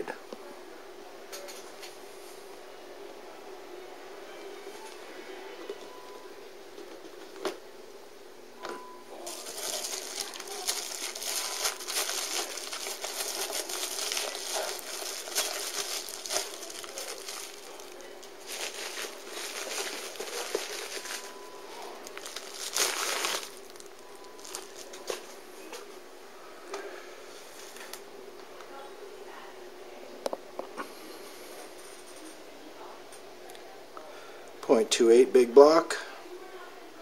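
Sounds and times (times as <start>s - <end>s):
plastic bag crinkling: 9.2s - 25.4s.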